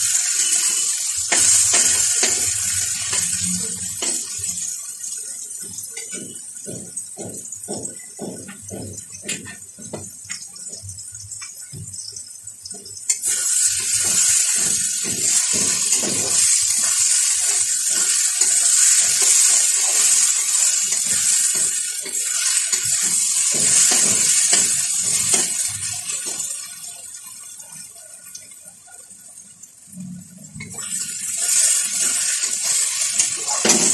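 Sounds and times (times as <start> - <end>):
masala sizzling in pan: 0.0 - 33.9
steel spatula scraping: 13.1 - 25.9.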